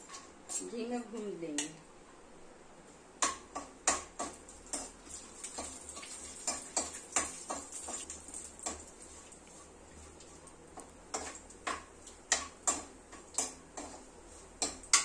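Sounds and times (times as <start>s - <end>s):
food frying in fat: 3.2s - 15.0s.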